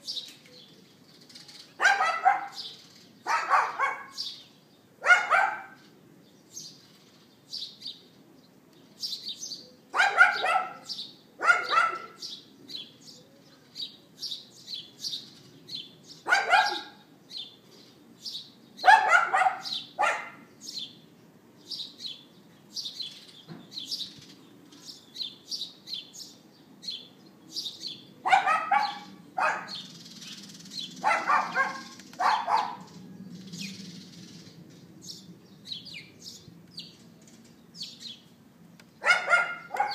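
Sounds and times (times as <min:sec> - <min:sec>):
small birds chirping: 0:00.0 - 0:39.9
dog barking: 0:01.8 - 0:02.7, 0:03.3 - 0:04.2, 0:05.0 - 0:05.8, 0:09.9 - 0:12.2, 0:16.3 - 0:17.1, 0:18.8 - 0:20.5, 0:28.2 - 0:29.8, 0:31.0 - 0:33.0, 0:39.0 - 0:39.9.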